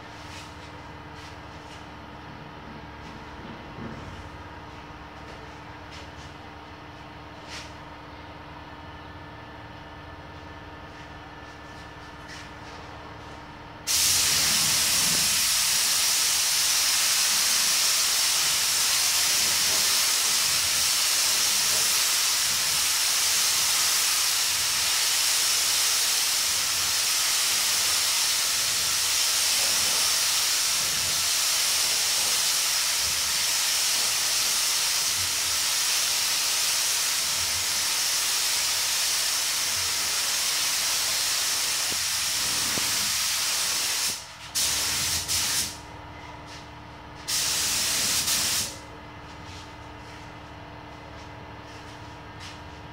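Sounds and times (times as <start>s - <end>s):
spray gun hissing: 13.9s - 45.8s, 47.2s - 48.8s.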